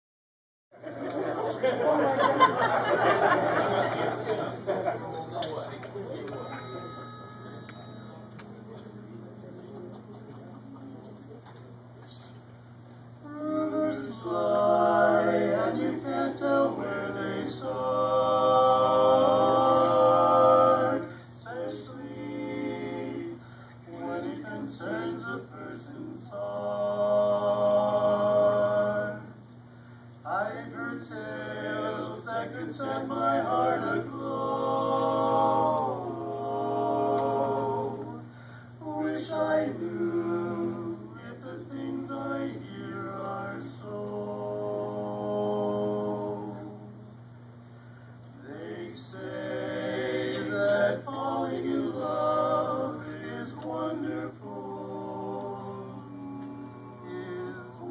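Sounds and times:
steady low hum: 0.7 - 57.9
male vocal quartet singing: 13.2 - 29.4, 30.2 - 47.1, 48.4 - 57.9.

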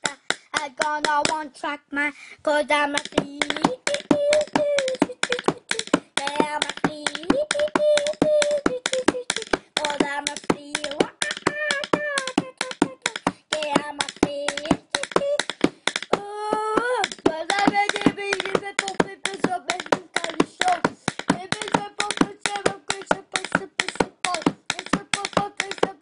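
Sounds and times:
child singing wordless notes: 0.0 - 26.0
pencil drumming on hard surface: 2.8 - 26.0.

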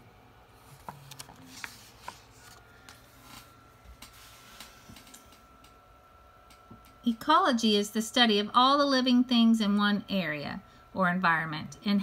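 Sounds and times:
paper page rustling: 0.6 - 4.9.

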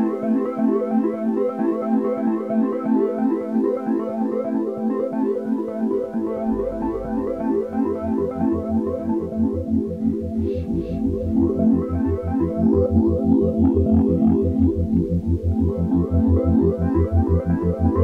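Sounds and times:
deep bass: 6.0 - 18.0.

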